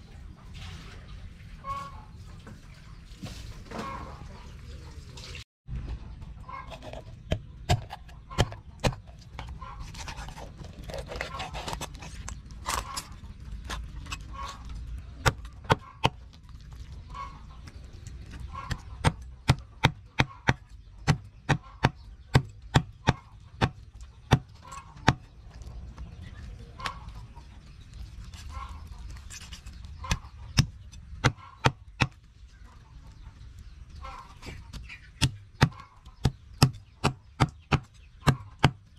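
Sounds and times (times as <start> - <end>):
hens clucking: 6.0 - 16.2, 16.9 - 38.8
cleaver chopping on wooden block: 7.3 - 9.1, 18.6 - 25.2, 34.7 - 38.9.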